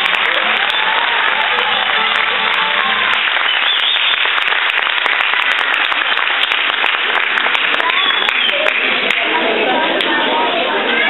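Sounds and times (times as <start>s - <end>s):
dance music: 0.0s - 3.8s
audience applauding: 0.0s - 9.4s.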